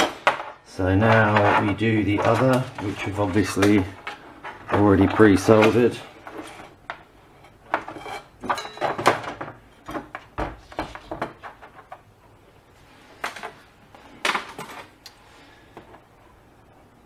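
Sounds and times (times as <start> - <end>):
handling knocks and clicks: 0.0 - 7.1, 7.7 - 12.2.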